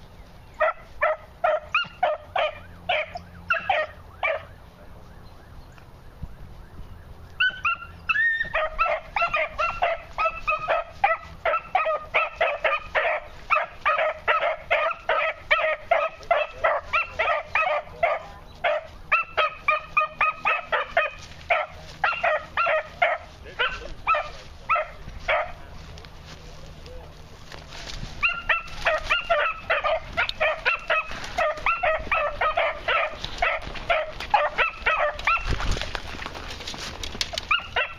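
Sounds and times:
puppy yipping: 0.6s - 4.5s, 7.4s - 25.5s, 28.2s - 35.6s, 37.4s - 37.9s.

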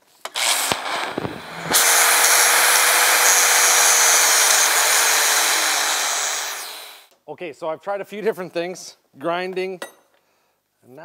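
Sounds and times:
angle grinder grinding: 0.0s - 7.1s
grinder knocking on metal: 0.3s - 6.8s.

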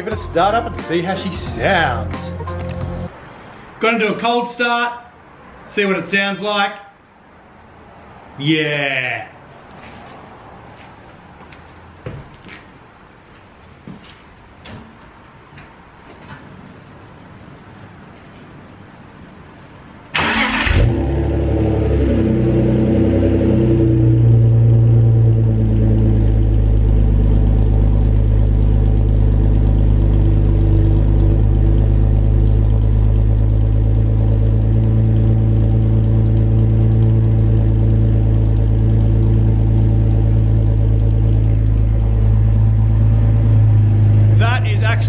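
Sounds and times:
car engine starting and idling: 0.0s - 3.1s, 20.1s - 45.0s.

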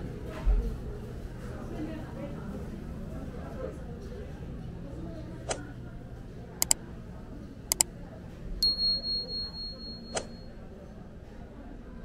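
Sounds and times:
low market background noise: 0.0s - 12.0s
struck bell ding: 8.6s - 10.5s.

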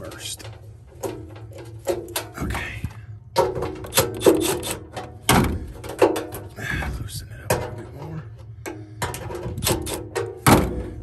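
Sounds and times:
clicks knocks and rubbing: 0.0s - 6.5s.

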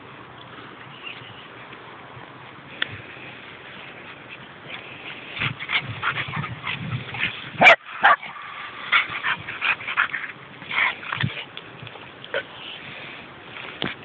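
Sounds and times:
dogs barking and yipping: 4.8s - 11.5s.

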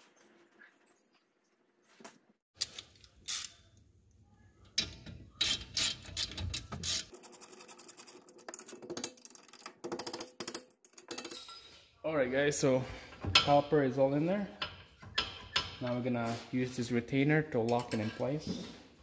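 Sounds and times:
metal tool clicks and knocks: 14.6s - 15.9s.

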